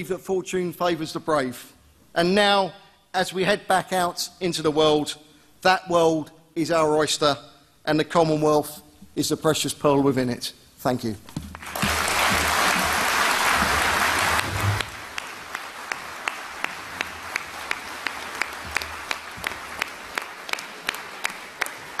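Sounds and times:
audience applauding: 11.5 - 22.0.

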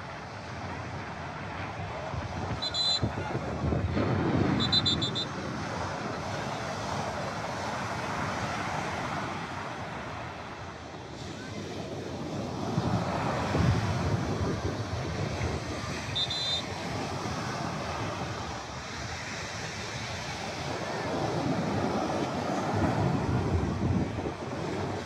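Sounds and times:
small waves breaking on shore: 0.0 - 25.0
wind buffeting microphone: 0.0 - 25.0
high beeping: 2.6 - 3.1, 4.6 - 5.3, 16.1 - 16.7.

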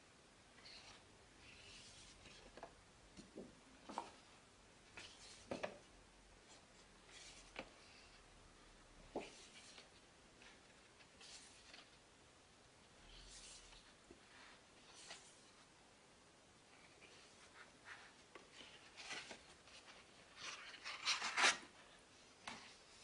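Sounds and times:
paper pages rustling: 16.8 - 21.9.

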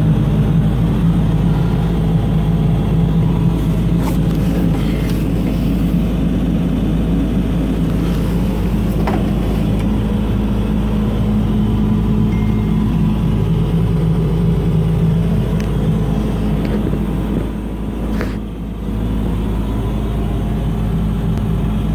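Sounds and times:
diesel engine running: 0.0 - 21.9
handling clicks and knocks: 8.8 - 10.0.

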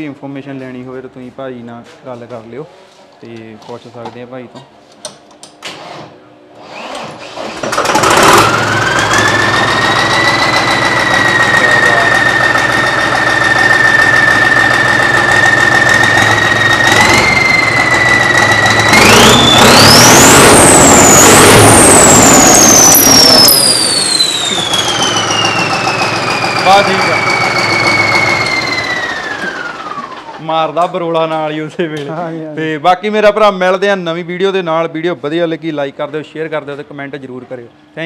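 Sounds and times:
diesel tractor engine idling: 7.8 - 30.4
turbo whistle: 16.4 - 29.1.

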